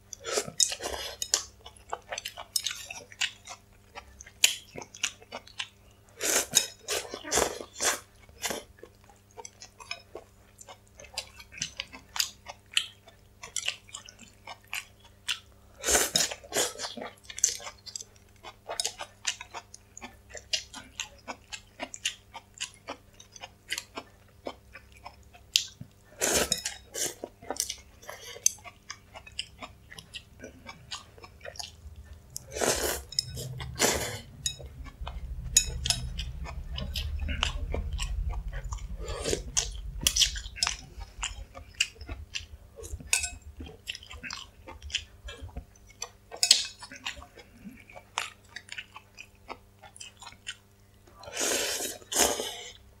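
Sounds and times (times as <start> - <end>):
faint electrical hum: 0.0 - 53.0
wet chewing and mouth clicks: 0.1 - 5.8, 6.4 - 15.5, 16.1 - 52.8
slurping noodles: 6.2 - 8.6, 26.2 - 27.3, 32.4 - 34.3, 51.2 - 52.8
low rumble: 31.7 - 45.5.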